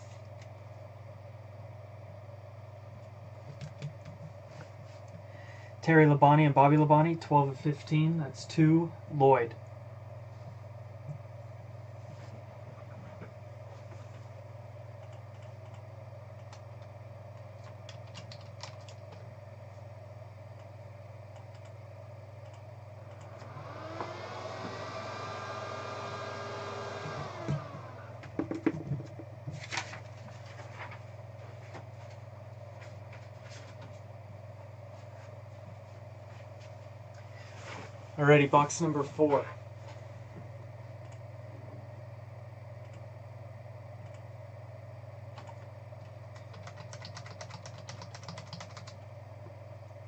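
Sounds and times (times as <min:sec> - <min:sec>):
steady room hum: 0:00.0 - 0:50.0
small electric motor whirring: 0:23.3 - 0:28.1.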